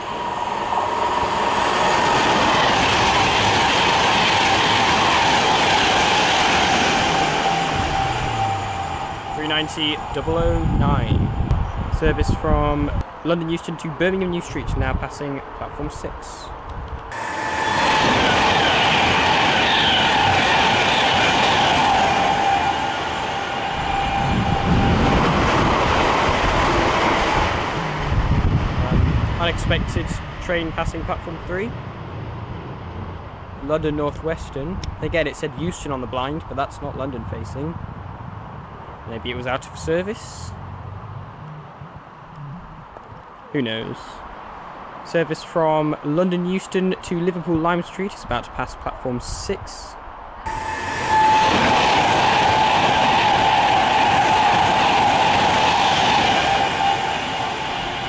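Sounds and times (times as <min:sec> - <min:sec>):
electric train passing at speed: 0:00.0 - 0:14.6, 0:16.6 - 0:43.0, 0:50.0 - 0:58.0
high train whine: 0:00.0 - 0:45.3, 0:45.9 - 0:58.0
low tone dropping in pitch: 0:06.6 - 0:13.0, 0:22.6 - 0:26.3, 0:39.2 - 0:43.3.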